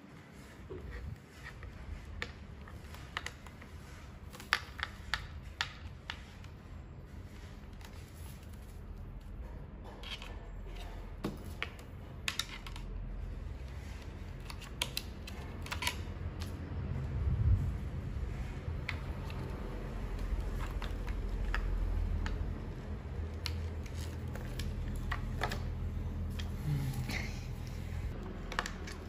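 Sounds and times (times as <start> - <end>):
low steady hum: 5.9 - 29.0.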